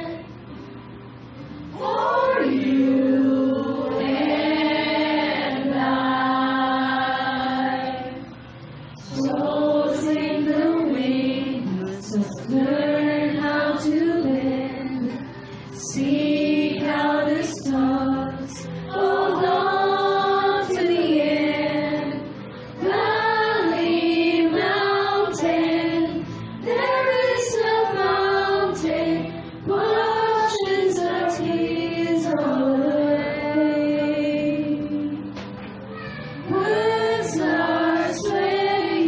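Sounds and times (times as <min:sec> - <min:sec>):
group of voices singing: 0:00.0 - 0:00.3, 0:01.7 - 0:08.4, 0:09.0 - 0:35.5, 0:36.5 - 0:39.0
woman singing into a microphone: 0:09.1 - 0:35.4, 0:36.5 - 0:39.0.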